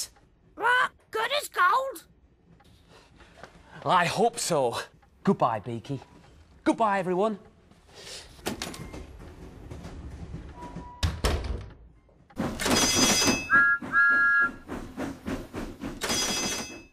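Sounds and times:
door shutting with a thud: 10.8s - 11.8s
whistle notes: 13.3s - 14.7s.

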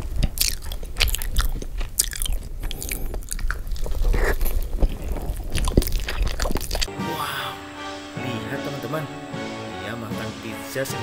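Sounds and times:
chewing crunchy pizza: 0.0s - 6.9s.

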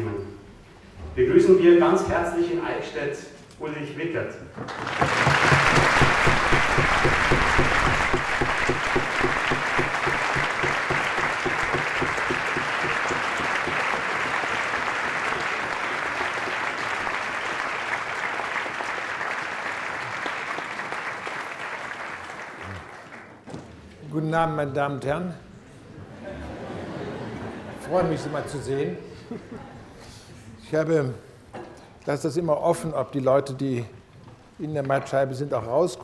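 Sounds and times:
large audience applauding: 4.6s - 23.4s.

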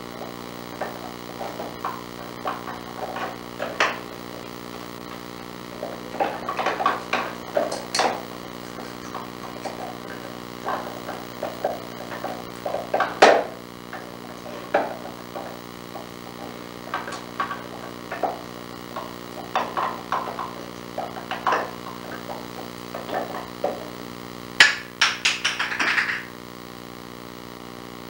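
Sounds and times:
steady low hum: 0.0s - 28.0s
wooden drawers clicking and rattling: 5.7s - 24.0s.

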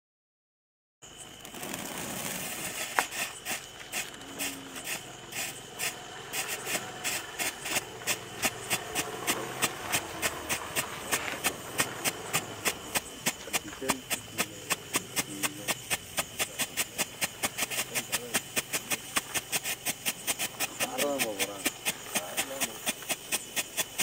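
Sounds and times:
firework fizzing: 1.2s - 24.0s
firework sharp pops: 1.3s - 24.0s.

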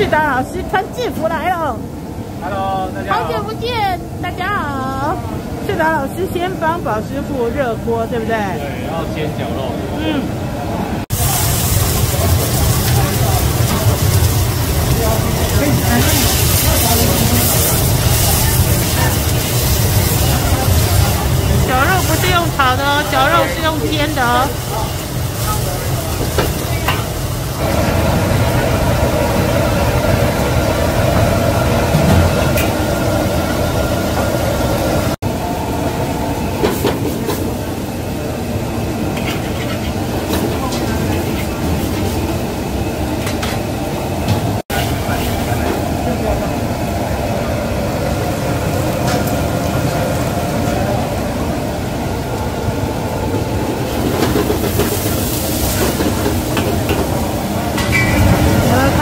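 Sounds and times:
gas burner roar: 0.0s - 59.0s
meat sizzling in a wok: 11.1s - 30.8s, 54.5s - 57.3s.

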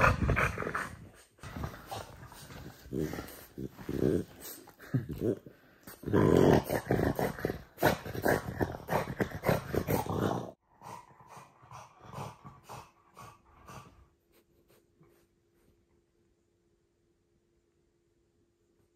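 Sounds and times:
dog grumbling: 0.0s - 14.0s.

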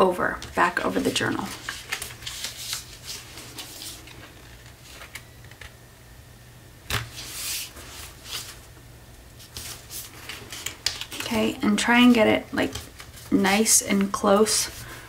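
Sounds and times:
paper rustling and scraping: 0.5s - 5.3s, 7.0s - 8.7s, 9.4s - 13.6s.

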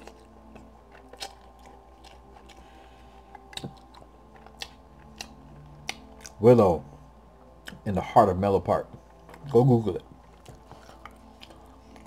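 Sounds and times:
wet mouth clicks and smacks: 0.0s - 2.6s, 3.4s - 6.4s
chewing noodles: 0.0s - 6.6s, 9.1s - 12.0s.

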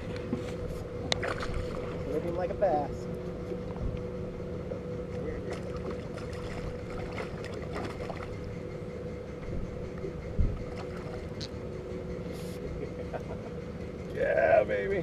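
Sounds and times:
water noise: 0.0s - 4.2s, 4.9s - 12.1s
steady low hum: 0.0s - 15.0s
wind: 0.0s - 15.0s
light splashes: 1.1s - 2.1s, 5.4s - 8.4s.

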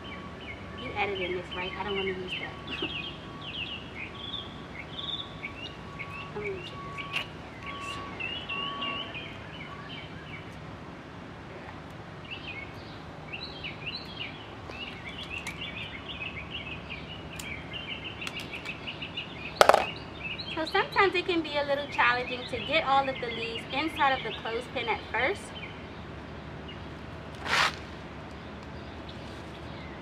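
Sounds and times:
small birds chirping: 12.2s - 21.0s.

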